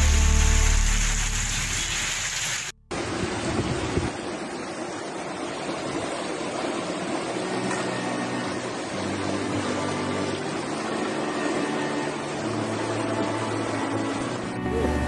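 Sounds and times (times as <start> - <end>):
floodwater rushing: 0.0 - 15.0
wind buffeting microphone: 3.0 - 4.4.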